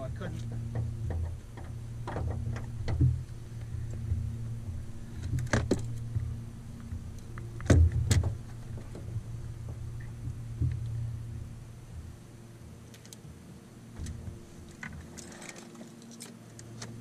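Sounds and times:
low hum: 0.0s - 17.0s
gear knocking in a boat: 0.2s - 11.1s.

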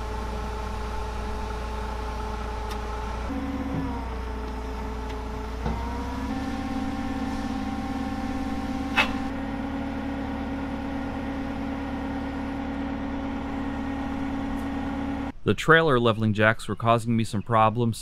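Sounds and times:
forklift engine running: 0.0s - 15.4s.

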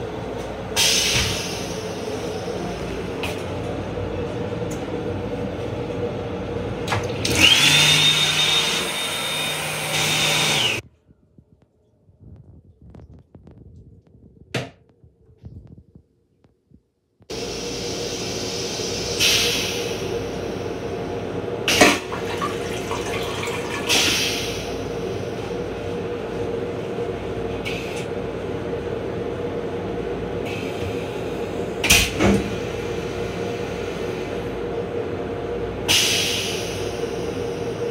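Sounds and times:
toilet flush running with hum: 6.2s - 10.8s, 17.3s - 37.9s.

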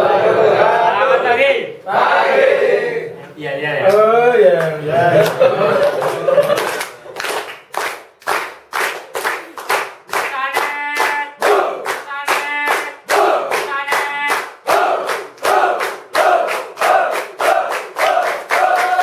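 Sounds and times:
rhythmic hand clapping: 3.8s - 19.0s
voices singing held notes: 10.3s - 19.0s.

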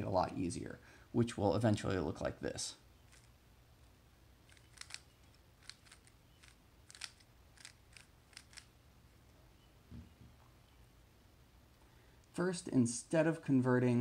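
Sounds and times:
plastic puzzle cube clicking: 4.5s - 8.7s.

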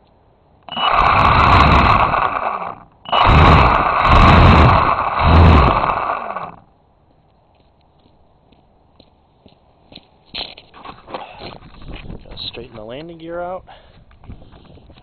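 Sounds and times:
model airplane motor and propeller: 0.7s - 6.6s.

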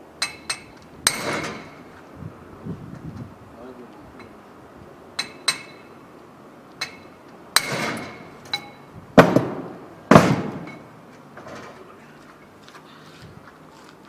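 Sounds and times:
hammer striking metal: 0.2s - 1.9s, 5.2s - 5.9s, 6.8s - 10.9s
metallic ringing: 0.2s - 1.9s, 5.2s - 6.0s, 6.8s - 9.0s.

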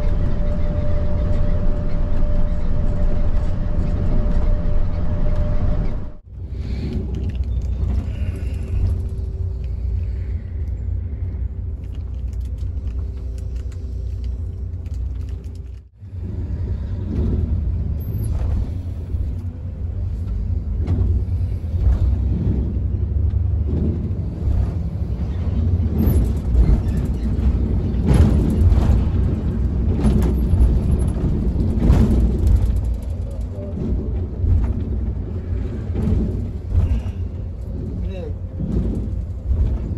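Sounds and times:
road vehicle rumble: 0.0s - 39.9s
knocks and rattles: 11.7s - 39.9s.

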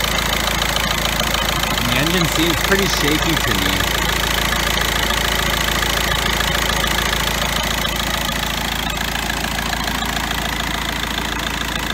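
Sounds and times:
diesel engine idling with clatter: 0.0s - 11.9s.

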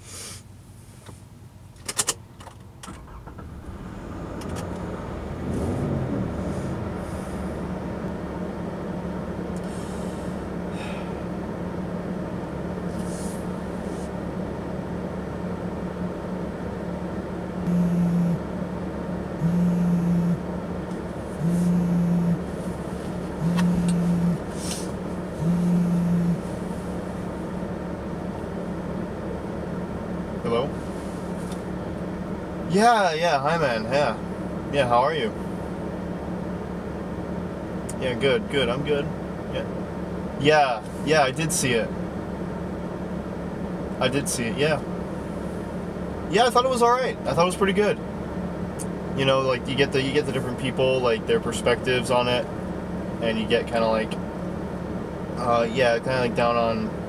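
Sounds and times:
engine-like hum: 0.0s - 57.0s
phone buzzing on vibrate: 17.7s - 18.5s, 19.4s - 20.5s, 21.4s - 22.5s, 23.4s - 24.6s, 25.4s - 26.5s.

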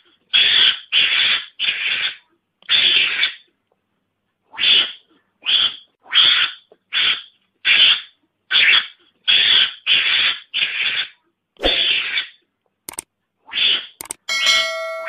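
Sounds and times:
mongoose harsh hissing calls: 0.4s - 3.4s, 4.6s - 12.4s
sharp clicks: 12.9s - 13.1s, 14.0s - 14.3s.

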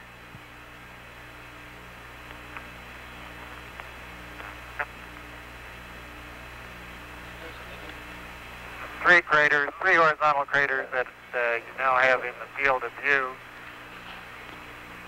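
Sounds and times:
radio hiss and hum: 0.0s - 15.0s
radio clicks: 2.2s - 5.4s, 8.8s - 13.3s, 14.1s - 14.7s.

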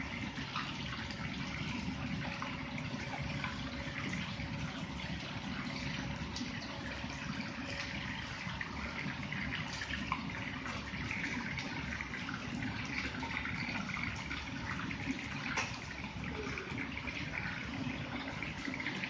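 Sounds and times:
water running into a pot: 0.0s - 19.0s.

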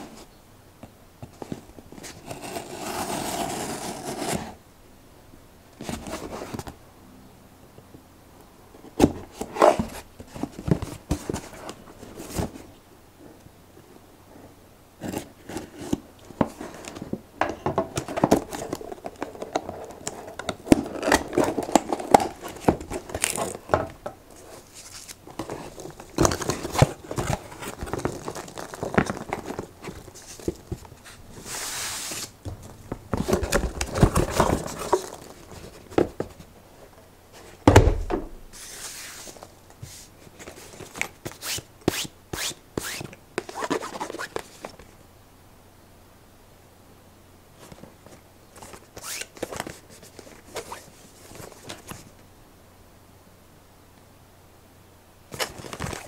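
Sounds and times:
packing peanuts rustling on table: 24.3s - 36.0s
heavy thump: 37.6s - 38.5s.

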